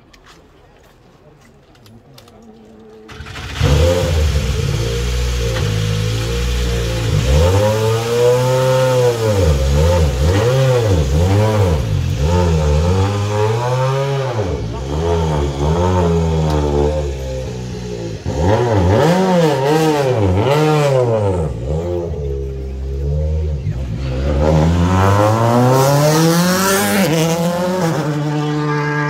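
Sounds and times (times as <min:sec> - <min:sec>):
car engine revving: 0:03.1 - 0:29.0
car engine starting and idling: 0:03.1 - 0:29.0.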